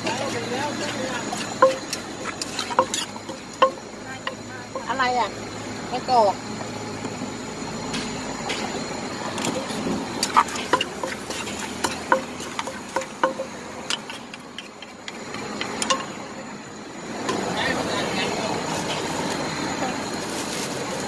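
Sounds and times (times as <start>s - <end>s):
wooden pestle pounding in mortar: 0.0s - 4.9s, 9.7s - 16.1s.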